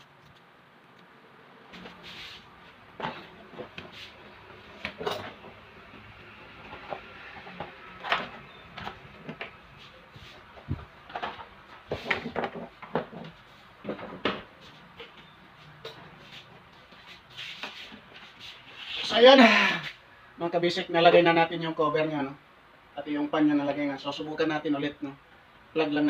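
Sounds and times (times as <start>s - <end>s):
fan parts clicking and knocking: 2.8s - 18.2s.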